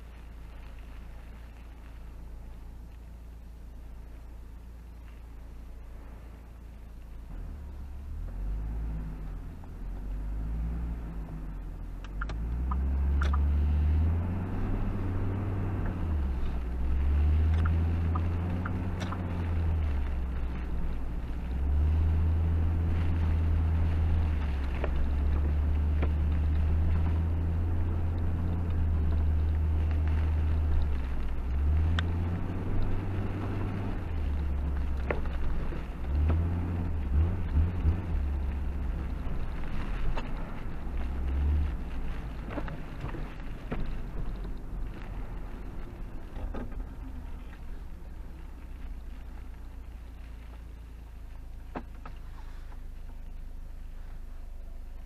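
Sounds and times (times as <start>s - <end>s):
car engine and road drone: 0.0s - 55.0s.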